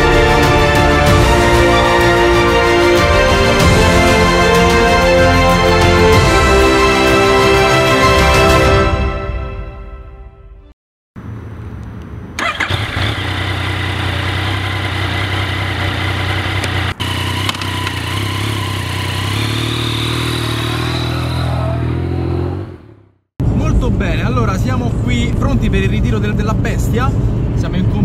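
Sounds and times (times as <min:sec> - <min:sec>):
motorcycle engine running: 0:12.4 - 0:23.1.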